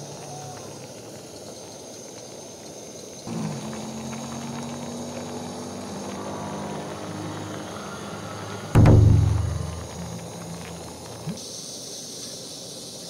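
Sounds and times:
stove burning with steady roar: 0.0 - 8.8
soup simmering: 3.3 - 6.9.

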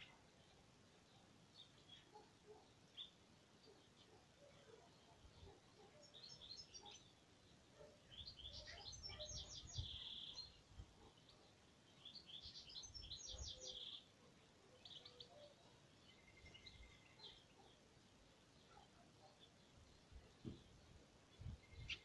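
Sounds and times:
bird singing faintly: 0.0 - 22.0.

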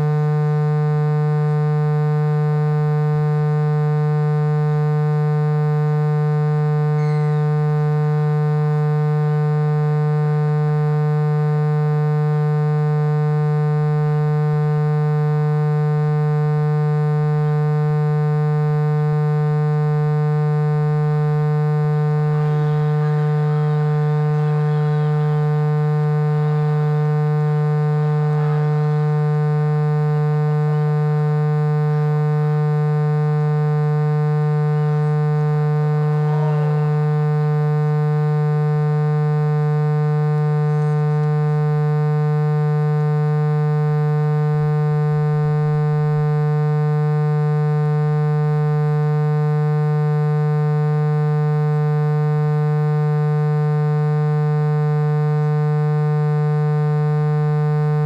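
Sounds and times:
electrical hum: 0.0 - 54.6
faint voices: 7.0 - 8.0, 28.1 - 29.3, 36.0 - 37.1.

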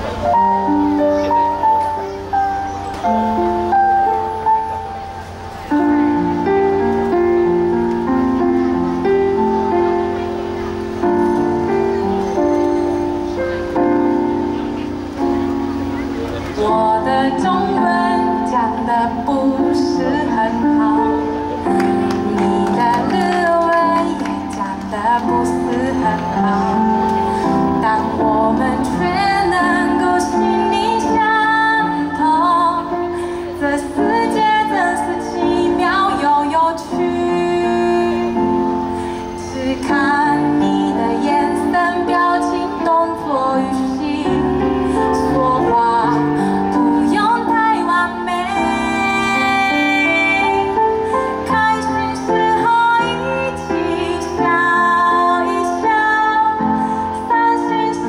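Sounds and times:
instrumental backing music: 0.0 - 58.0
woman singing: 16.5 - 58.0.

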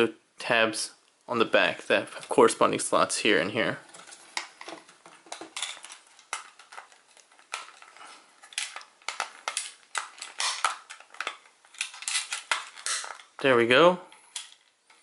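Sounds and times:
plastic toy parts clicking: 4.4 - 13.4, 14.3 - 15.0.

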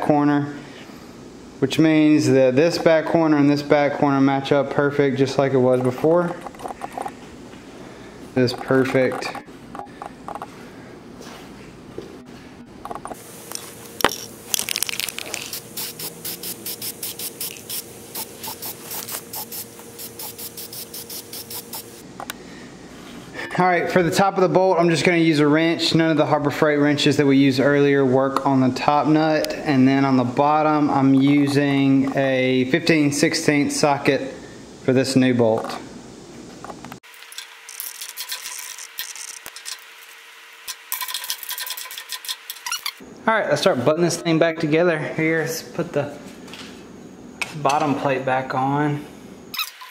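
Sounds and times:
spray can hissing: 13.2 - 22.0, 37.1 - 43.0.

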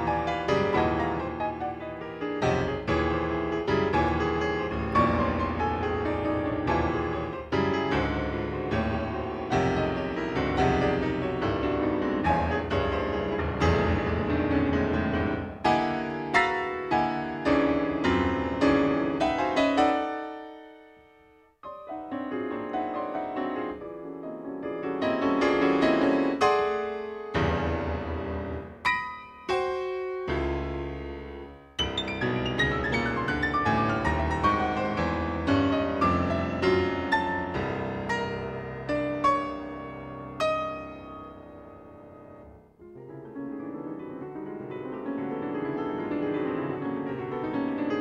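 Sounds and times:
solo piano hard-struck chords: 26.8 - 42.8.

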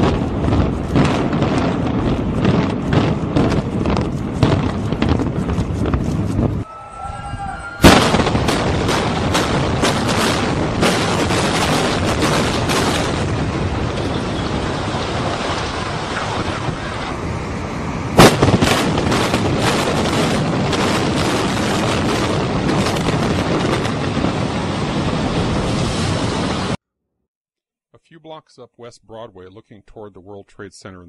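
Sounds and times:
explosive charges cracking: 0.0 - 6.6, 7.8 - 26.8
very loud blast: 0.0 - 16.9, 18.1 - 24.5
building collapsing rumble: 0.0 - 26.8.

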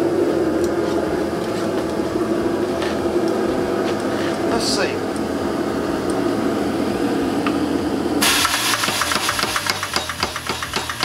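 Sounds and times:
power hammer drone and hiss: 0.0 - 11.0
hammer blows on hot steel: 8.2 - 11.0.

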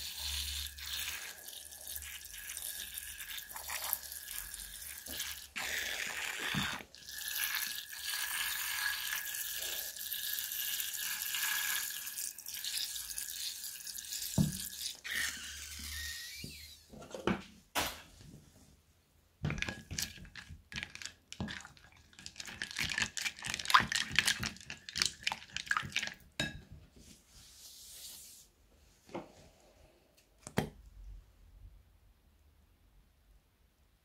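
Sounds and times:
spatula stirring wet slime: 0.0 - 16.6, 19.5 - 28.4.

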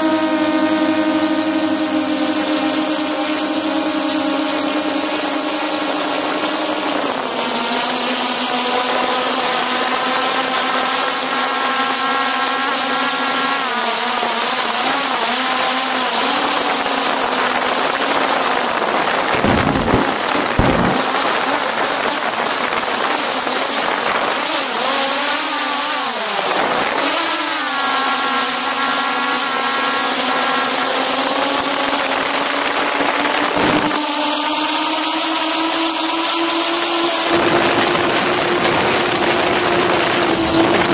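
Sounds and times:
drone propellers whining: 0.0 - 40.9
low rumbles: 19.4 - 21.4.

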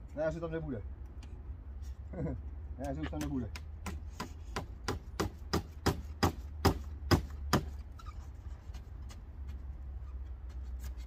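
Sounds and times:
hammer nailing into wood: 3.2 - 7.8.

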